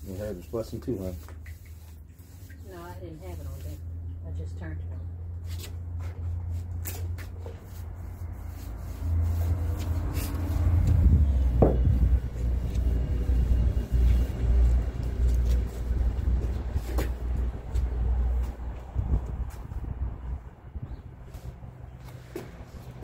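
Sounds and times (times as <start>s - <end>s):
loud low rumble: 10.0s - 20.9s.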